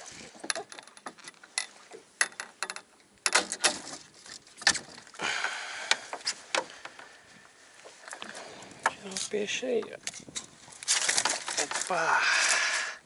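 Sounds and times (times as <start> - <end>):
fishing gear clicks and knocks: 0.0 - 7.2, 7.8 - 12.7.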